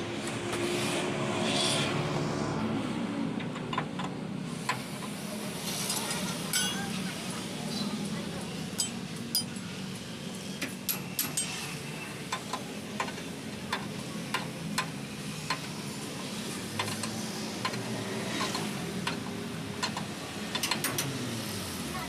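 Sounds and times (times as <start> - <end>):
wrench clicking on metal nuts: 19.8 - 21.2.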